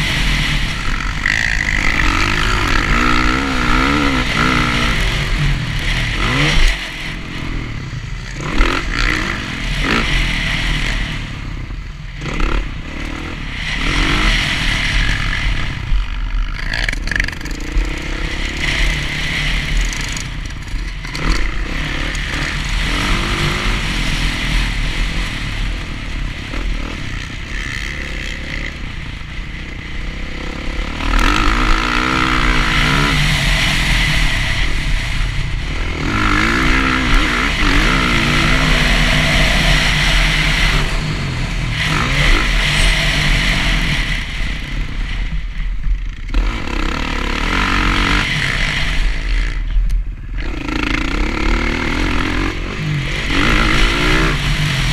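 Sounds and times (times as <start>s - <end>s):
dirt bike engine revving: 0.0s - 54.9s.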